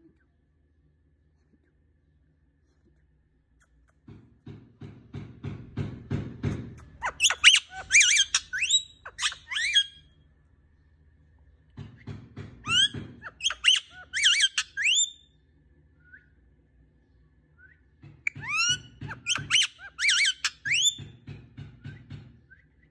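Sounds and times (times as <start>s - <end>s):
parakeet squawking: 6.7s - 10.0s, 12.6s - 15.2s, 18.3s - 21.0s.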